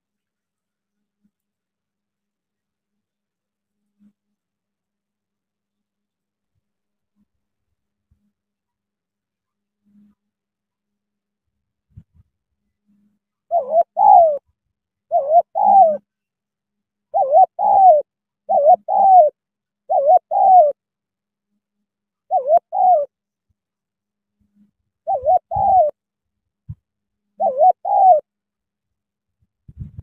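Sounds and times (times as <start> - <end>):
dove cooing: 13.5 - 14.4, 15.1 - 16.0, 17.1 - 20.8, 22.3 - 23.1, 25.0 - 26.0, 27.4 - 28.3.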